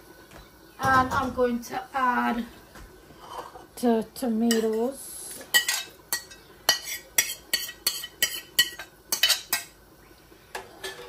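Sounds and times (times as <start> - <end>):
metal spoon clinking in a pot: 5.5 - 9.7.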